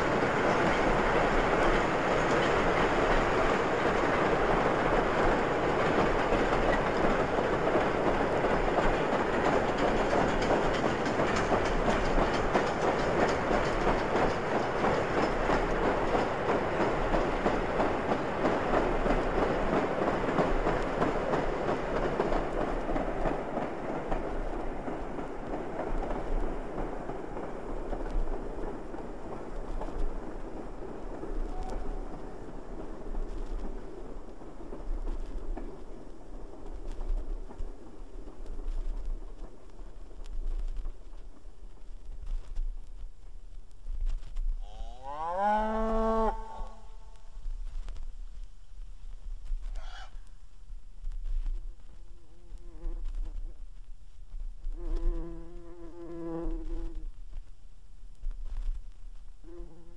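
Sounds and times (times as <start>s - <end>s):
wheels clattering over rail joints: 0.0s - 42.7s
steam train running by: 0.0s - 43.5s.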